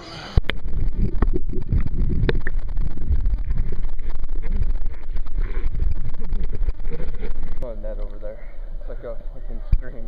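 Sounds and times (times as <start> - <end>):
muffled underwater rumbling: 0.0 - 10.0.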